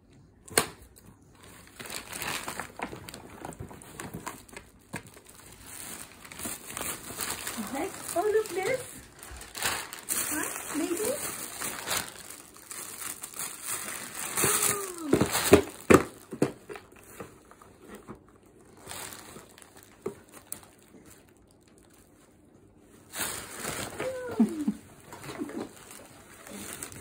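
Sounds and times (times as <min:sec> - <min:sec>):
gift wrap crumpling: 0:01.3 - 0:27.0
falling coo-like vocal sound: 0:24.0 - 0:25.8.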